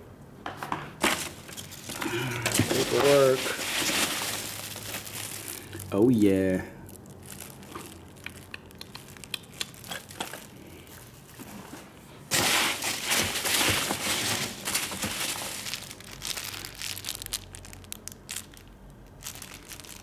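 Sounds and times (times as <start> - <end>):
foam packing peanuts rustling: 1.0 - 20.0
plastic packaging crinkling: 1.0 - 20.0.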